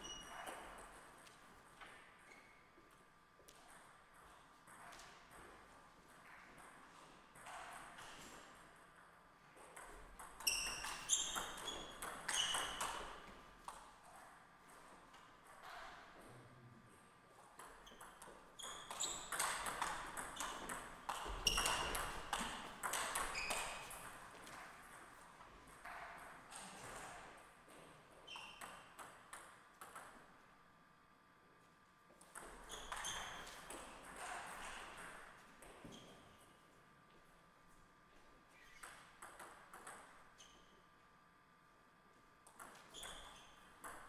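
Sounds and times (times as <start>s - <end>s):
table tennis ball pinging: 9.8s - 13.3s, 17.6s - 26.4s, 32.3s - 35.2s, 38.8s - 40.7s, 42.5s - 44.0s.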